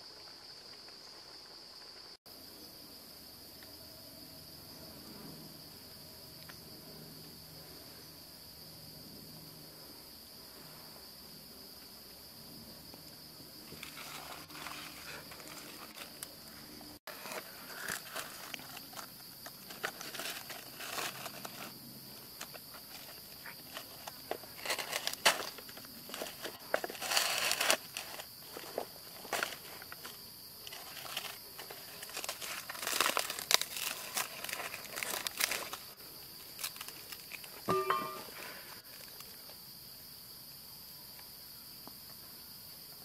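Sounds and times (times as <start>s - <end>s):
insects droning: 0.0s - 43.0s
dry leaves rustling and crinkling: 13.7s - 16.4s, 17.1s - 37.7s.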